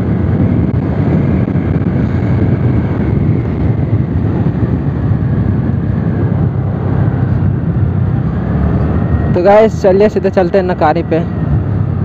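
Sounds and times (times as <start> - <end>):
scooter engine and tyres: 0.0 - 12.0
wind rushing over microphone: 0.0 - 12.0.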